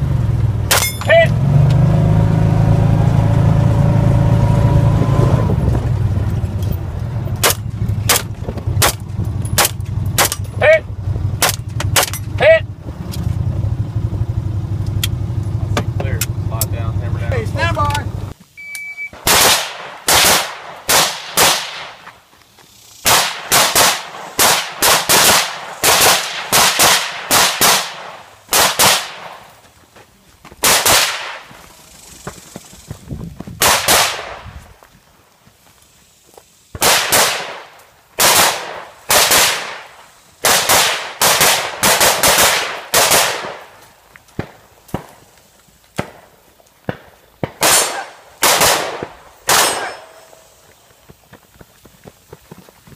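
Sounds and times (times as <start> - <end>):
shot timer beep: 18.6 - 19.2
rapid gunshots: 19.2 - 22.0, 23.0 - 29.4, 30.6 - 31.5, 33.6 - 34.4, 36.8 - 43.7, 46.9 - 50.0.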